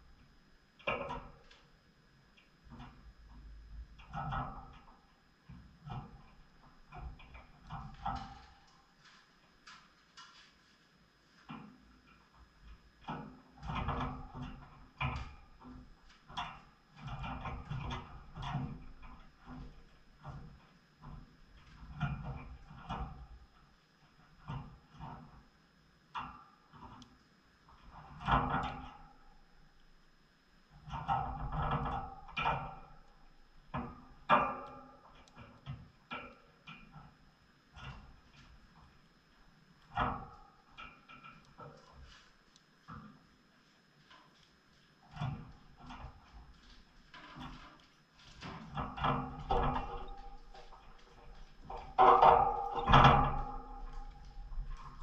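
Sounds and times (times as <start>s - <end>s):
sharp knocks and clatters: 45.0s - 55.0s.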